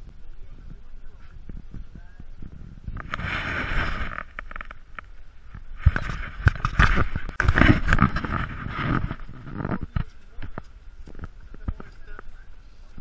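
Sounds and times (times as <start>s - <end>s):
camera handling rustling: 5.8s - 11.4s.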